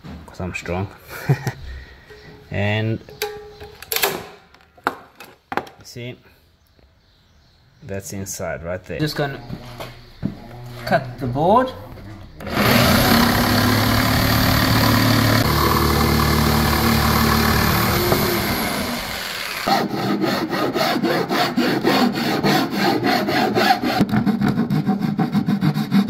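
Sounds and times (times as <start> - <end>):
electric jigsaw cutting wood: 12.4 - 22.3
hand file scraping wood: 12.4 - 26.0.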